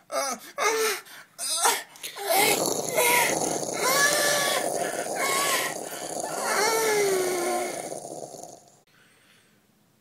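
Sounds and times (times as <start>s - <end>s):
steady hissing noise: 2.0s - 8.9s
person crying or groaning: 2.2s - 7.7s
wavering voice-like tone: 2.2s - 8.4s.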